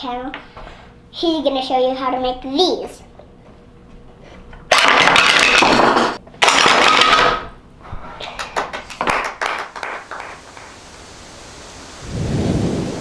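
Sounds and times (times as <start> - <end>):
wooden pieces clattering on table: 4.7 - 7.5.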